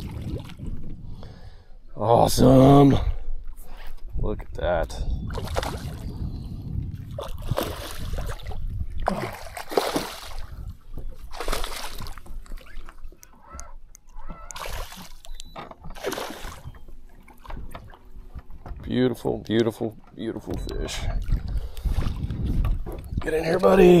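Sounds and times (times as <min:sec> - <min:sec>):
fish splashing at water surface: 0:07.2 - 0:10.6, 0:11.3 - 0:12.7, 0:14.5 - 0:15.3, 0:16.0 - 0:16.7.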